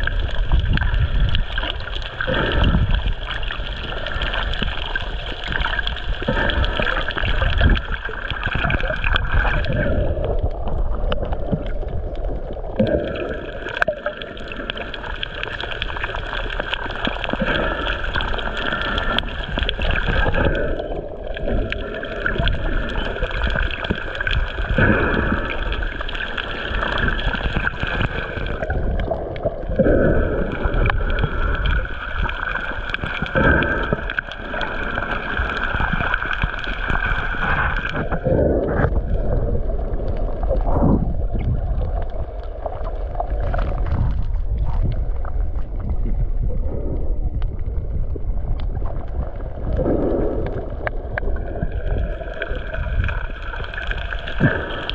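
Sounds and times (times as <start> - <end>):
underwater water gurgling: 0.0 - 54.9.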